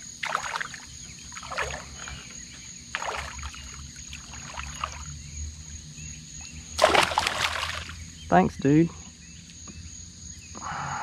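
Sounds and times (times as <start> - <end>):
water splashing beside a boat: 0.0 - 5.2, 6.8 - 8.0
high insect buzz: 0.0 - 11.0.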